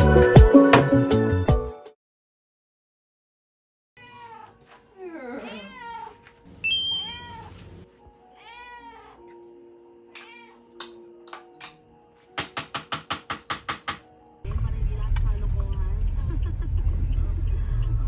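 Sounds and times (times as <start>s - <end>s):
cat meowing: 4.0s - 7.6s, 8.4s - 9.4s, 10.2s - 10.8s.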